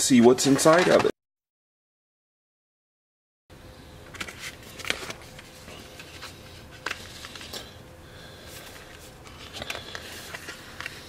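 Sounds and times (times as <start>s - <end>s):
card packaging rustling: 4.1s - 7.8s, 8.5s - 11.0s.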